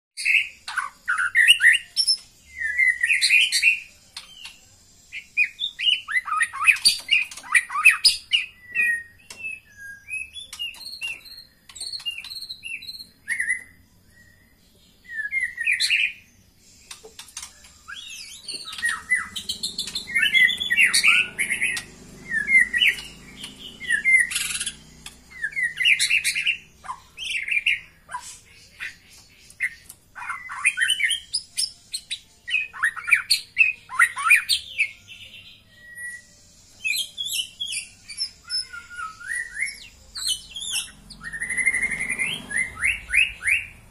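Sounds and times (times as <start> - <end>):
bird chirping and squawking: 0.2 - 14.4, 15.1 - 36.2, 36.8 - 43.9.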